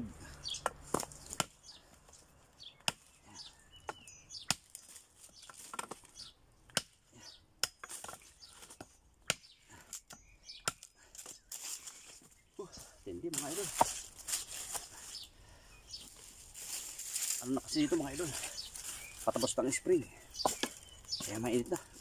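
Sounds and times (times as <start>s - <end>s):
machete chopping branch: 0.6s - 1.6s, 2.8s - 3.2s, 4.4s - 6.1s, 6.7s - 7.0s, 7.6s - 11.3s, 13.4s - 14.9s, 20.4s - 20.8s.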